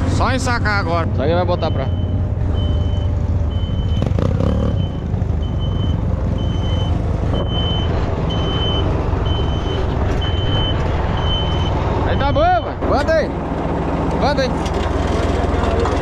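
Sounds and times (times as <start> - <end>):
tractor diesel engine running: 0.0 - 16.0
electronic warning beeper: 1.4 - 12.8.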